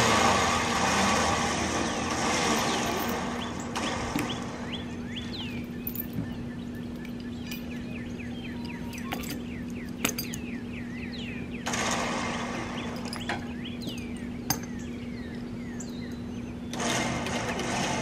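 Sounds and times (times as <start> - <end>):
steady low hum: 0.0 - 18.0
birds chirping: 1.7 - 17.2
steel chain clinking: 2.5 - 3.3, 5.6 - 6.2, 7.0 - 7.9, 8.6 - 10.5, 13.0 - 14.8.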